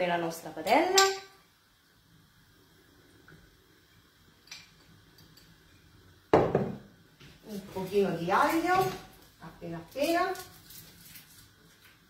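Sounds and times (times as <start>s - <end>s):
glass bottle set down: 6.4s - 6.8s.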